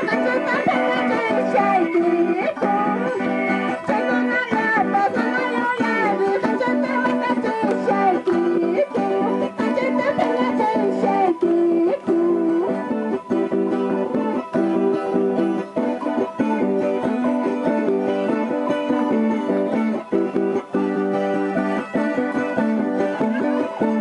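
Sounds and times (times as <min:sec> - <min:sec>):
strummed string instruments: 0:00.0 - 0:24.0
woman singing: 0:00.0 - 0:24.0.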